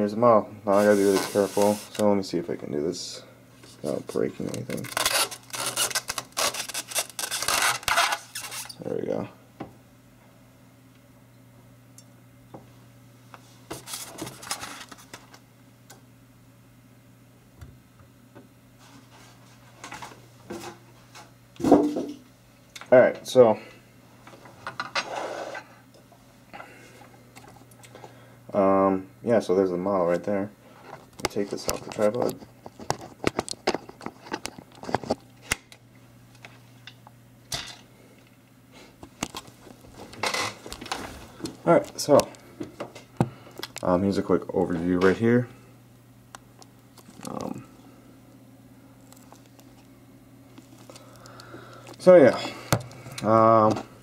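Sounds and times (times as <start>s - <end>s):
faint steady hum: 0.0s - 54.0s
foam packaging scraping and rustling: 0.7s - 2.0s, 3.9s - 8.7s, 13.8s - 15.1s
rubbing rustles: 0.8s - 2.0s.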